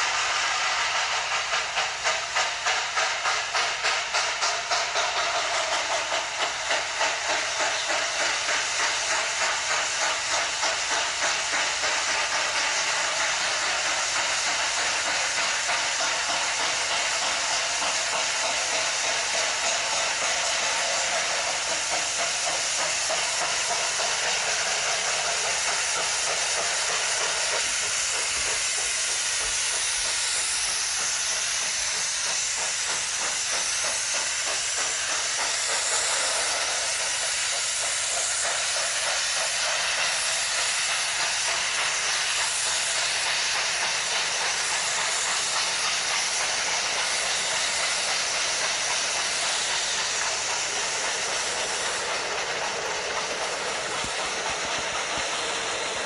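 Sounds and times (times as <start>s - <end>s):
model train cars rolling: 0.0s - 56.0s
steam hiss: 0.0s - 56.0s.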